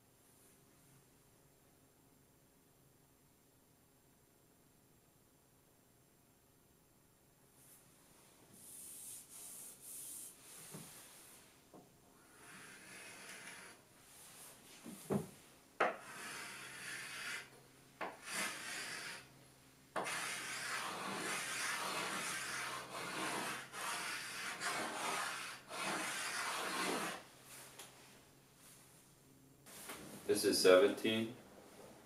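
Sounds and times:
chalk scraping on chalkboard: 0:08.6 - 0:11.2, 0:12.3 - 0:14.5, 0:15.8 - 0:19.3, 0:20.0 - 0:27.2
chalk tapping on board: 0:20.0 - 0:27.2.

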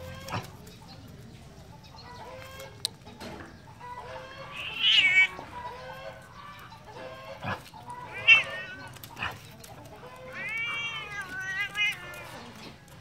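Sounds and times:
cat yowling: 0:04.5 - 0:05.4, 0:10.3 - 0:12.4.

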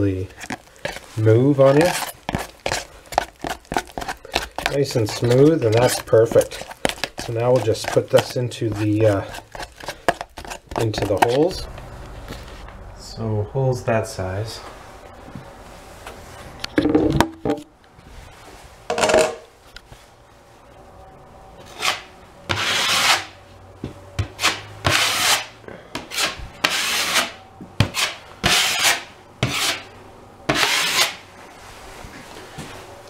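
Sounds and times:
drywall knife scraping: 0:00.2 - 0:11.6, 0:21.6 - 0:23.4, 0:24.2 - 0:29.9, 0:30.5 - 0:31.2.

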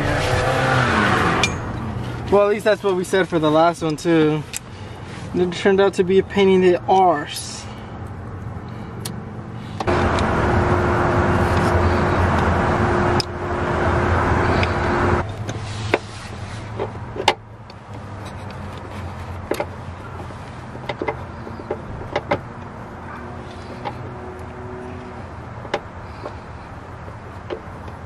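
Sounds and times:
metal hardware clicking and knocking: 0:20.8 - 0:22.5.

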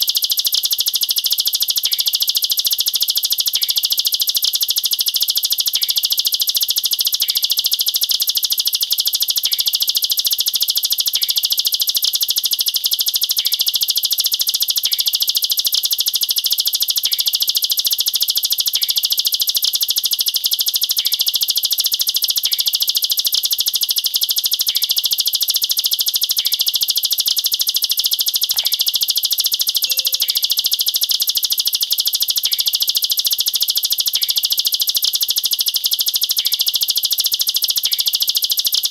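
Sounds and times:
bird singing a rattling trill: 0:29.8 - 0:30.5.

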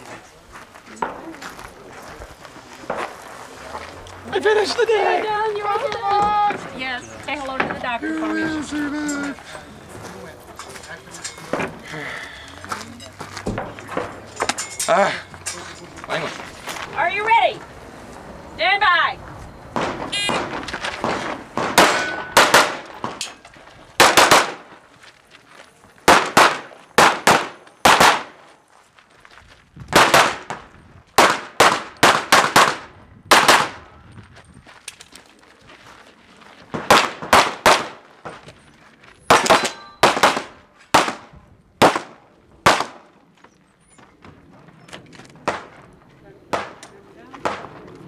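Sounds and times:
gunshots in quick pairs: 0:19.7 - 0:23.2, 0:24.0 - 0:24.8, 0:26.0 - 0:28.4, 0:29.9 - 0:30.6, 0:31.2 - 0:33.9, 0:36.8 - 0:38.1, 0:39.3 - 0:43.1, 0:46.5 - 0:46.8.

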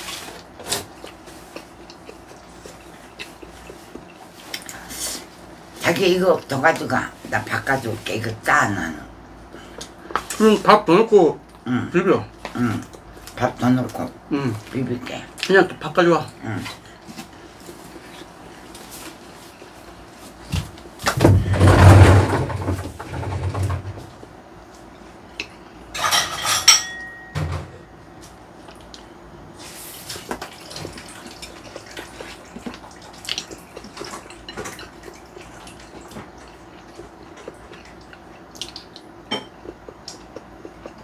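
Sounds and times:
dishes clattering: 0:25.9 - 0:27.7
ringing clink: 0:26.6 - 0:27.4.

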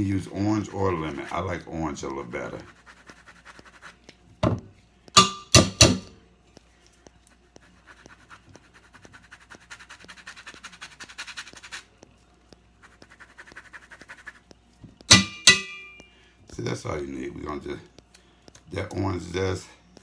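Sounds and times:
sharp knock: 0:05.2 - 0:06.1, 0:15.1 - 0:16.0.

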